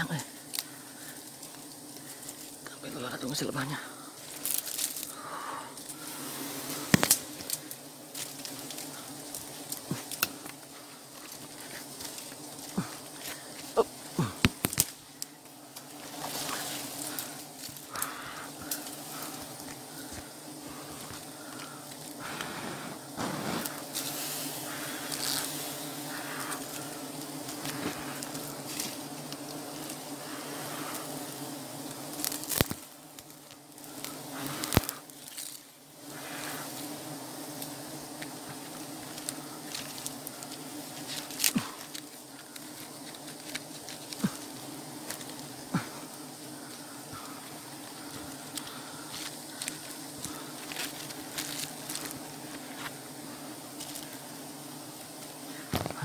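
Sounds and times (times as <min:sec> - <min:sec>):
bees buzzing: 0:00.0 - 0:56.0.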